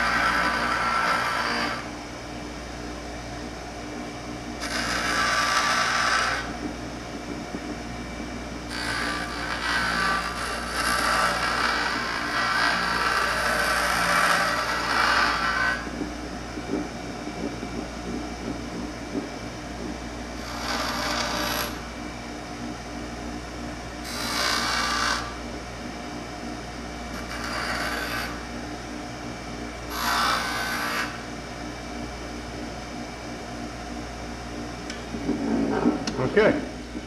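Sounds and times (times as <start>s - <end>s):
bench grinder running: 0.0s - 2.0s, 4.6s - 6.7s, 8.0s - 18.6s, 20.3s - 22.1s, 24.0s - 25.6s, 27.1s - 28.6s, 29.8s - 31.3s
harsh grinding of steel: 8.8s - 15.9s.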